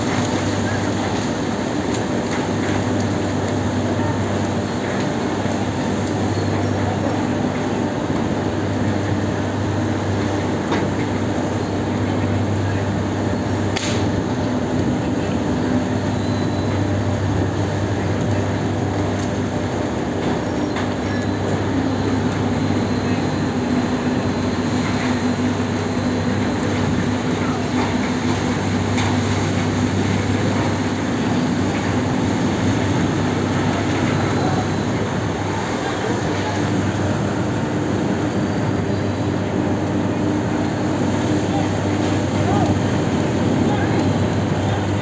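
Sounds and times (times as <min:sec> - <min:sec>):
machinery rumbling and humming: 0:00.0 - 0:45.0.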